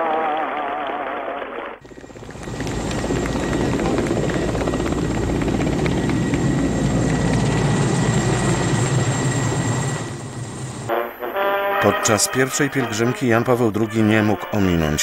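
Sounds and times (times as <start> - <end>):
helicopter rotor chopping: 1.8 - 10.9.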